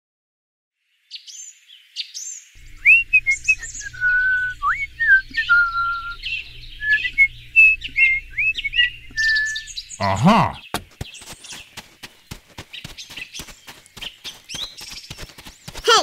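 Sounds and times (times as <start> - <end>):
birds chirping and whistling: 1.1 - 15.8
faint low hum: 2.6 - 10.6.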